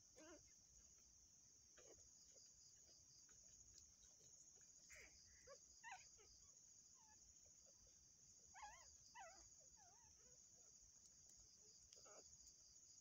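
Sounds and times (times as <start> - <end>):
crickets chirring: 0.0 - 13.0
dog whimpering: 0.2 - 0.4, 8.6 - 10.1.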